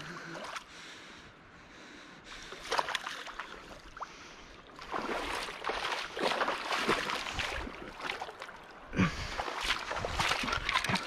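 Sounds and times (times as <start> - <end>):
fish splashing in shallow water: 2.4 - 11.0.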